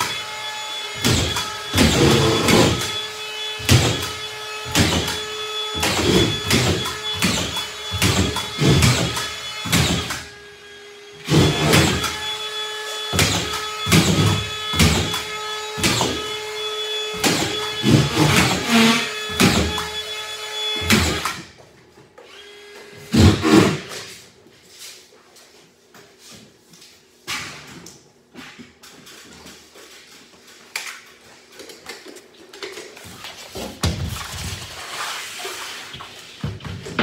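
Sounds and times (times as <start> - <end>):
screws grinding into drywall: 0.9 - 10.3, 11.2 - 16.4, 17.0 - 20.1, 23.0 - 24.0.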